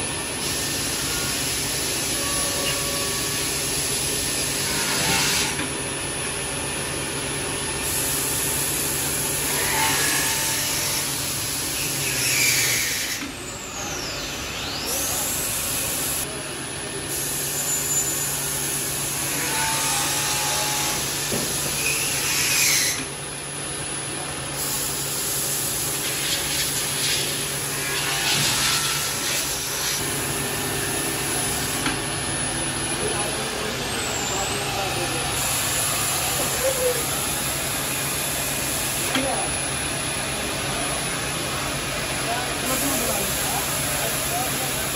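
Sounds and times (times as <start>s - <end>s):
high hissing whine: 13.4s - 19.5s
steady machine hum: 22.9s - 44.9s.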